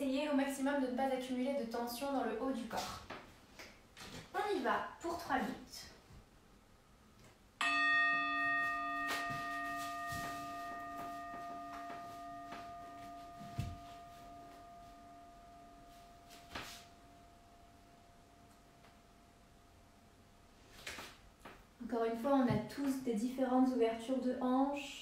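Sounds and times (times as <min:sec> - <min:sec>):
meditation bell ringing: 0:07.6 - 0:20.2
soft thumps: 0:09.1 - 0:14.8.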